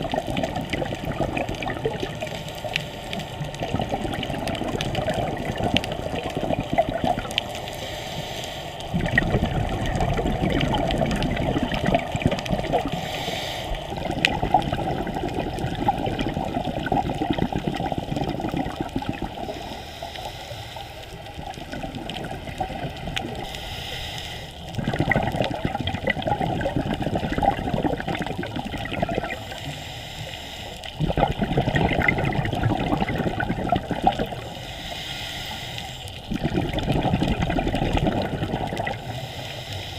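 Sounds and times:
exhaled bubbles underwater: 0.0 - 8.0, 8.7 - 23.6, 24.6 - 34.8, 36.1 - 39.6
scuba regulator breathing: 1.9 - 3.6, 5.9 - 9.1, 10.6 - 16.0, 17.2 - 21.9, 22.7 - 24.8, 29.0 - 31.4, 33.2 - 39.9.

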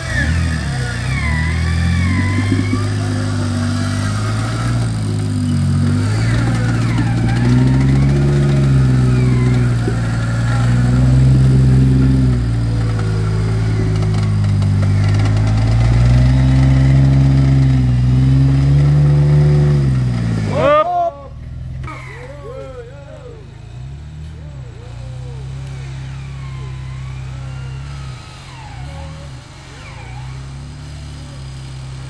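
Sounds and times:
car engine revving: 0.0 - 32.0.

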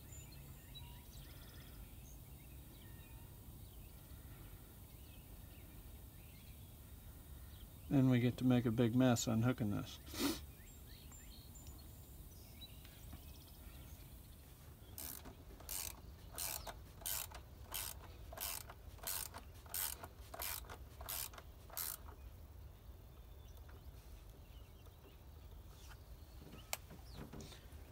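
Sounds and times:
socket ratchet clicking: 15.0 - 22.2.

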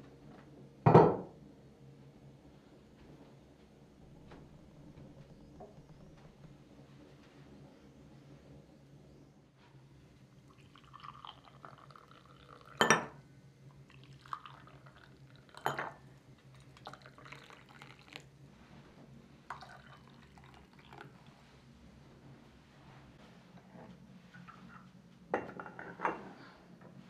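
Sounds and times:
tea pouring into glasses: 10.4 - 13.2, 13.8 - 18.4, 19.5 - 21.4
glass clinks: 12.8 - 13.1.

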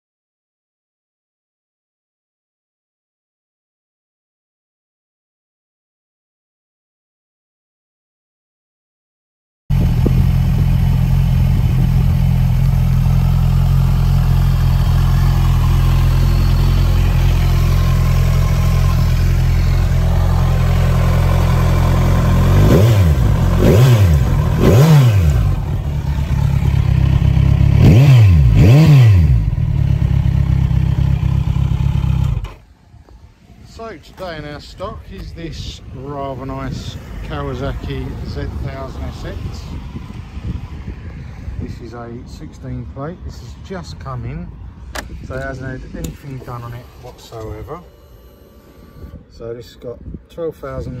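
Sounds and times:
motorcycle engine idling and revving: 9.7 - 33.2.

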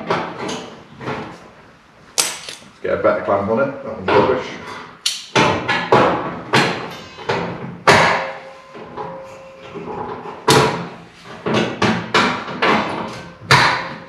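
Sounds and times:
sharp metal knocks and clanks: 2.2 - 2.7, 4.1 - 14.0.

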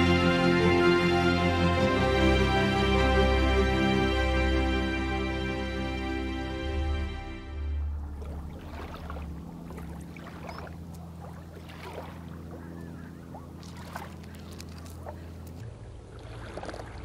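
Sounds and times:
low steady hum: 0.0 - 17.0
small waves lapping: 7.8 - 17.0.

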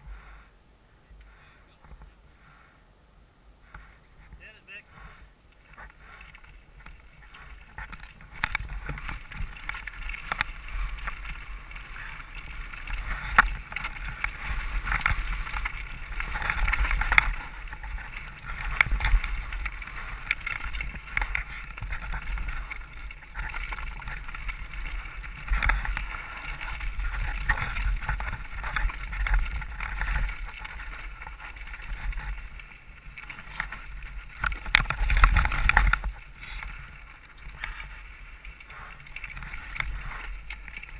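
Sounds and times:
bike rattling and clattering: 5.0 - 40.9
wind rumble on microphone: 5.0 - 40.9
tyres crunching over dirt and stones: 5.6 - 40.9.

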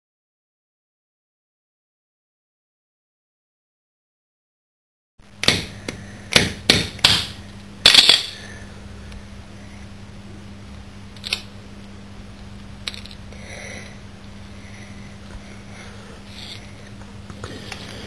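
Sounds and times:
steady low hum: 5.2 - 18.0.

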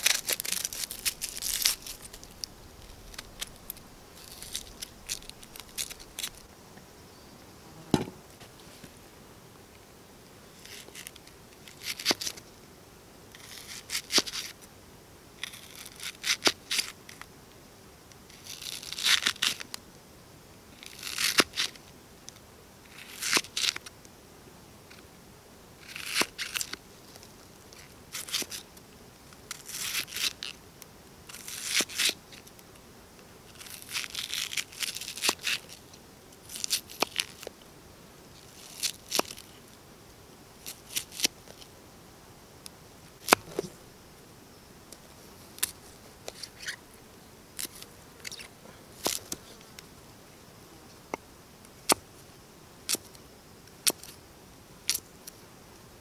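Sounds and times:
knife chopping on wooden board: 7.9 - 8.2.

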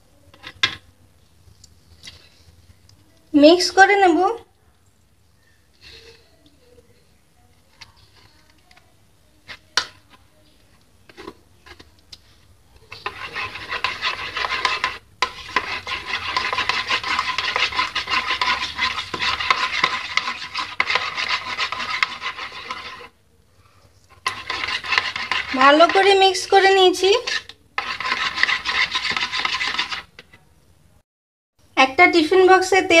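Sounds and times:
metal spoon scraping ceramic bowl: 12.9 - 23.2, 24.1 - 30.4.

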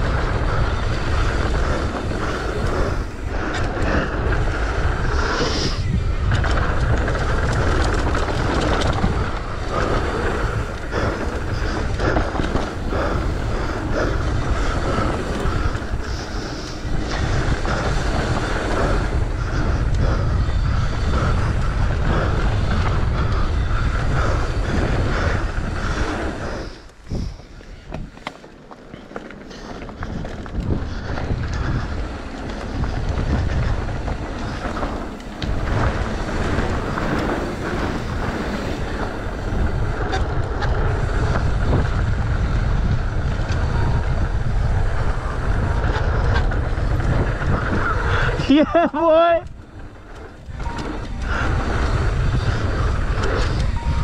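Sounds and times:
bike rattles: 0.0 - 54.0
tyres rumbling on dirt: 0.0 - 54.0
wind buffeting microphone: 0.0 - 54.0.

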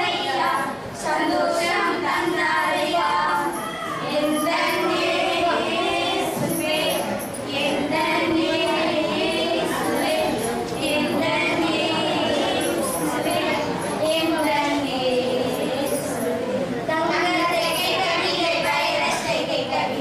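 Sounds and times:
young female voices singing: 0.0 - 20.0.

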